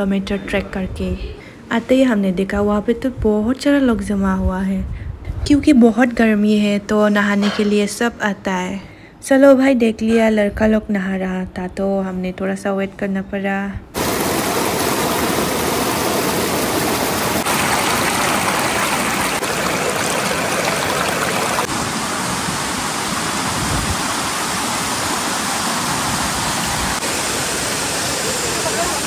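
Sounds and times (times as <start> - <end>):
waterfall roaring: 14.0 - 29.0.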